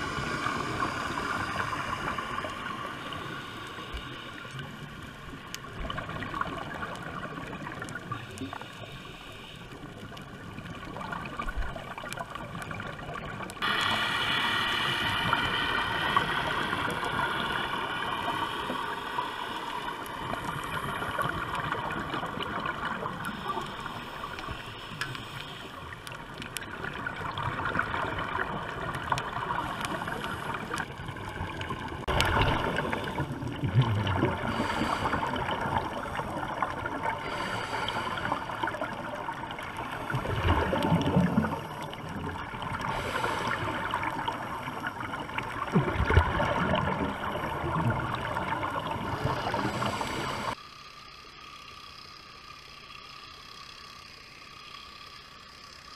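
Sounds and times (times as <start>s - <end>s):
faint droning hum: 0.0s - 55.9s
muffled underwater water noise: 0.0s - 55.9s.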